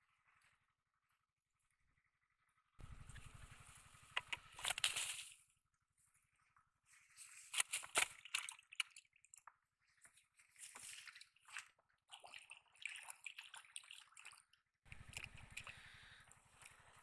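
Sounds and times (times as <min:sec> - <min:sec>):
steady low hum: 0:02.8 - 0:05.3, 0:14.9 - 0:17.0
fish splashing in water: 0:10.6 - 0:16.9.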